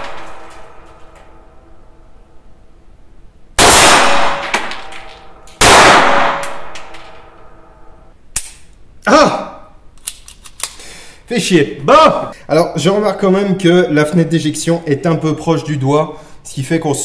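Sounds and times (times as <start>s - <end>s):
pistol shots ringing: 3.6s - 7.4s.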